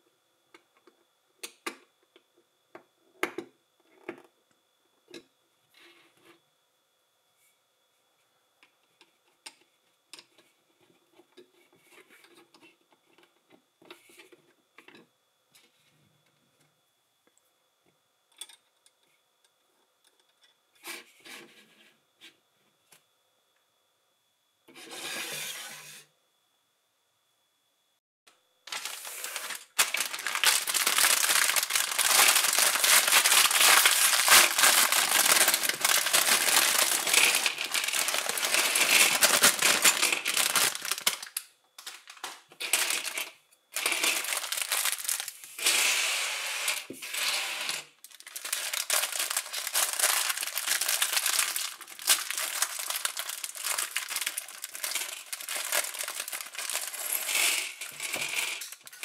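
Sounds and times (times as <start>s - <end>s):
plastic bag crinkling: 28.7s - 45.7s, 48.0s - 59.0s.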